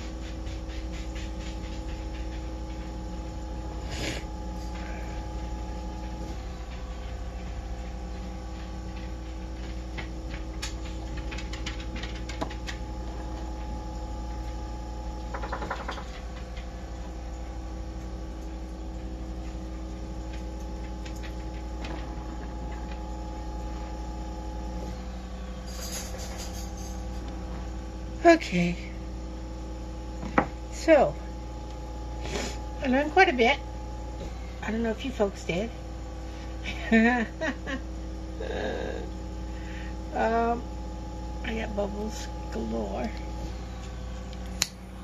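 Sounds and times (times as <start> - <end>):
small motor humming: 3.1 - 11.4, 35.8 - 41.4.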